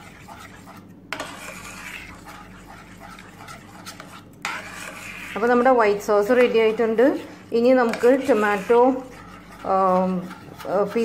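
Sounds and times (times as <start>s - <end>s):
metal spoon scraping saucepan: 0.0s - 11.0s.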